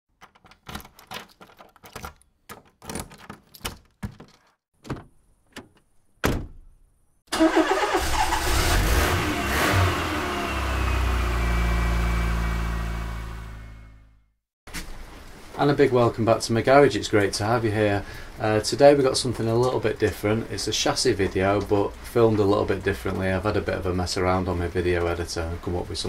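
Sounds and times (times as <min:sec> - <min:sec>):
irregular clicks and knocks: 0:00.1 - 0:06.6
engine starting and revving: 0:07.3 - 0:14.1.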